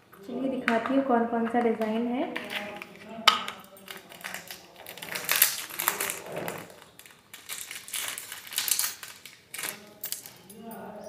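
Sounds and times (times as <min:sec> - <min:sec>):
plastic packaging crinkling: 0:02.3 - 0:10.6.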